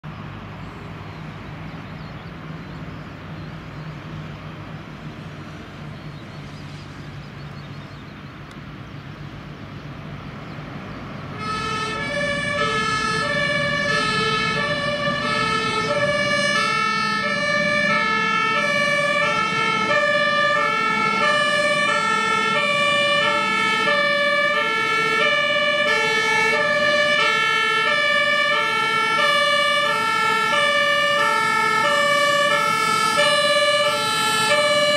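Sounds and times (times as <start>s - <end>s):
truck engine rumble: 0.0s - 34.9s
two-tone siren: 11.4s - 34.9s.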